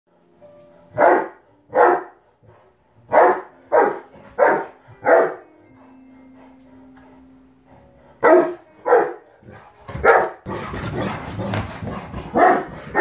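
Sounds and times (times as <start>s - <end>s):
dog barking: 1.0s - 2.2s, 3.1s - 5.5s, 8.2s - 9.2s, 10.0s - 10.5s, 12.0s - 13.0s.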